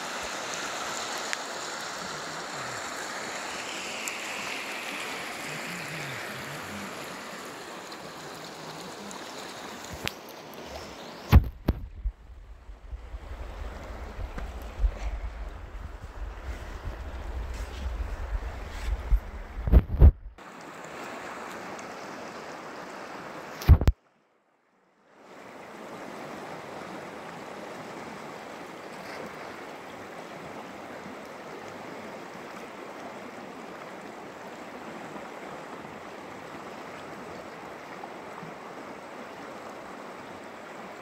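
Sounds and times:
river water rushing over rocks: 0:00.0 - 0:11.9.

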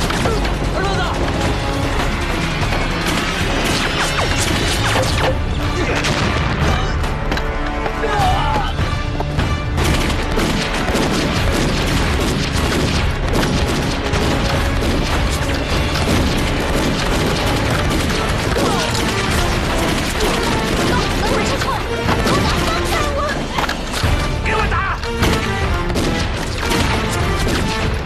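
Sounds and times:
dramatic background music: 0:00.0 - 0:28.0
explosions: 0:01.3 - 0:06.9, 0:09.8 - 0:22.7.

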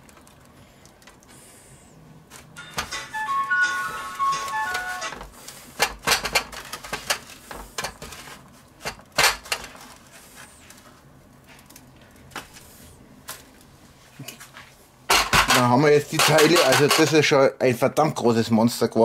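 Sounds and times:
electronic beep tune: 0:02.9 - 0:05.1
hands knocking and scraping metal tray: 0:15.1 - 0:17.2.

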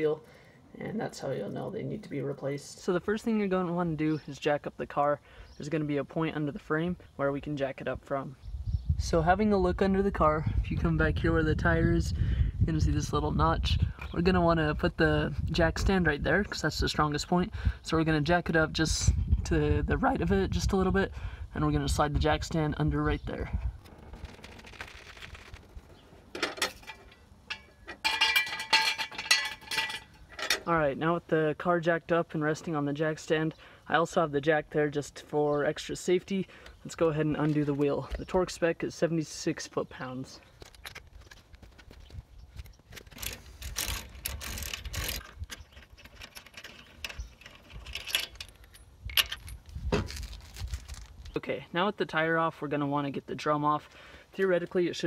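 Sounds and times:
metal jack stand clinking: 0:26.4 - 0:30.7, 0:43.1 - 0:49.7
jack crank clicking and scraping: 0:42.6 - 0:51.0.

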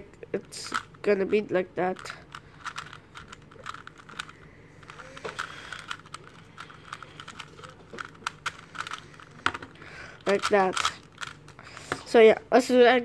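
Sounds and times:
puzzle cube clicking: 0:00.4 - 0:09.4, 0:10.2 - 0:11.6.

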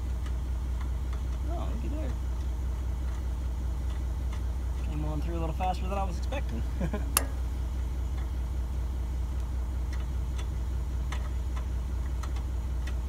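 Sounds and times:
engine idling: 0:00.0 - 0:13.0
faint ticks: 0:00.2 - 0:01.4, 0:09.4 - 0:13.0
sharp metallic click: 0:07.1 - 0:07.4.

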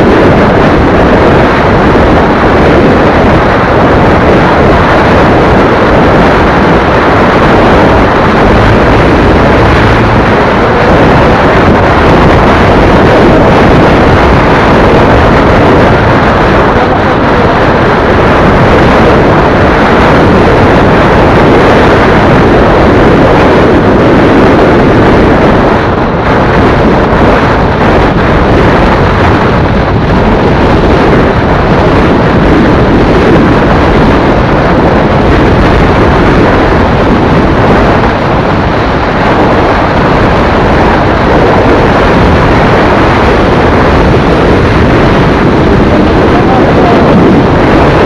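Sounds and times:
road noise: 0:00.0 - 0:48.0
wind rushing over microphone: 0:00.0 - 0:48.0
motorcycle engine: 0:05.7 - 0:21.2.

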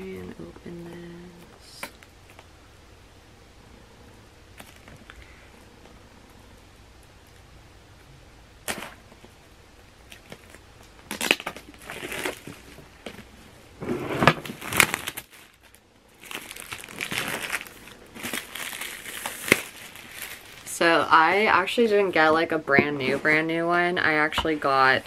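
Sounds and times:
plastic film crinkling: 0:10.0 - 0:13.4, 0:14.2 - 0:21.3.

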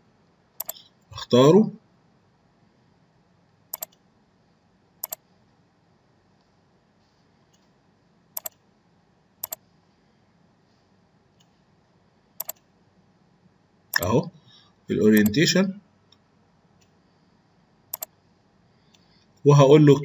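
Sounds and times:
faint room hiss: 0:00.0 - 0:20.0
computer mouse clicking: 0:00.6 - 0:00.8, 0:03.7 - 0:04.0, 0:05.0 - 0:05.2, 0:08.4 - 0:08.6, 0:09.4 - 0:09.6, 0:12.4 - 0:12.7, 0:15.2 - 0:15.4, 0:17.9 - 0:18.2.

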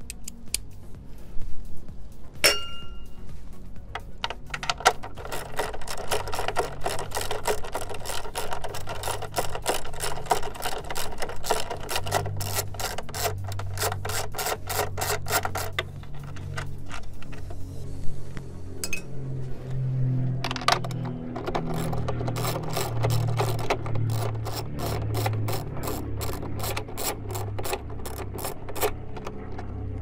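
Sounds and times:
ratchet clicking rapidly: 0:04.0 - 0:17.5, 0:20.5 - 0:29.4.

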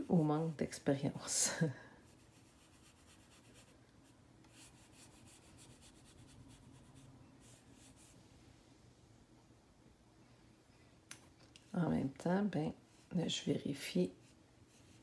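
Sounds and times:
sponge swishing on paper: 0:02.0 - 0:03.8, 0:14.1 - 0:15.0.

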